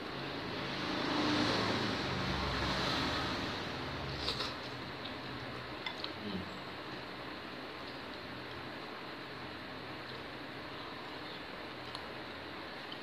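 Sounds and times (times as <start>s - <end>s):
motor vehicle passing by: 0.2s - 4.6s.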